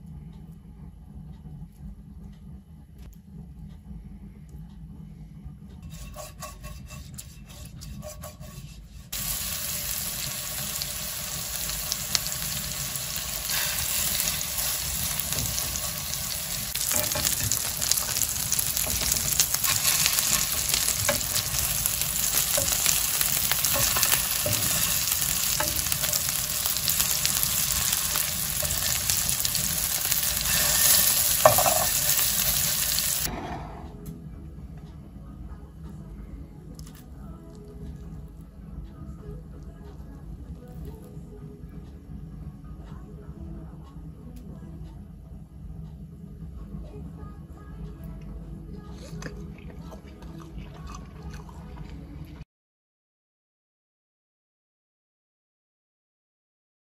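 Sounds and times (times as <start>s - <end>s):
fork clicking and scraping: 5.8s - 9.0s, 13.4s - 33.0s
meat sizzling in hot oil: 9.2s - 33.3s.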